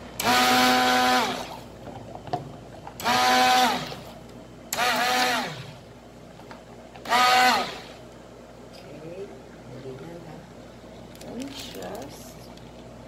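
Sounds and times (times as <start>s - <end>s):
immersion blender whining: 0.2s - 1.7s, 3.0s - 5.8s, 7.0s - 8.0s.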